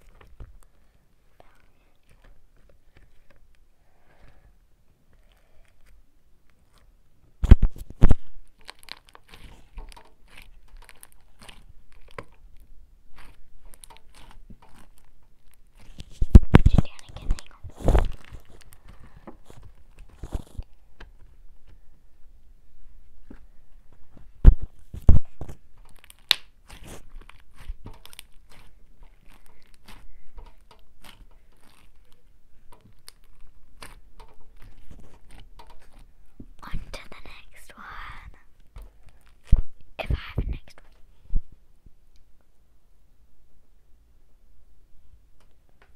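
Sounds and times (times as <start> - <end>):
cable crackly clicks and scrapes: 0.0 - 4.5, 5.1 - 21.9, 23.2 - 41.0
fingers handling at microphone: 6.6 - 21.9, 23.2 - 41.5.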